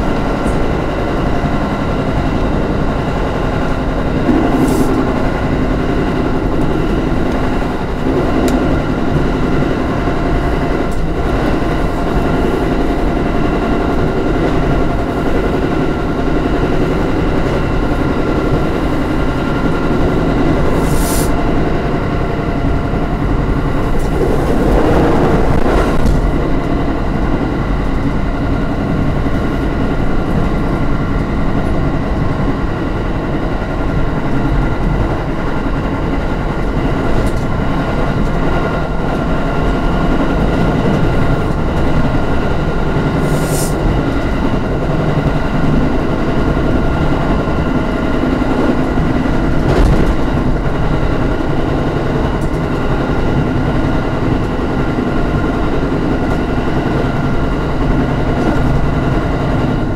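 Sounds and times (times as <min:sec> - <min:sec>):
machinery whine: 0:00.0 - 0:59.9
wheel and rail rumble: 0:00.0 - 0:59.9
short air hiss: 0:20.8 - 0:21.4, 0:43.2 - 0:43.8.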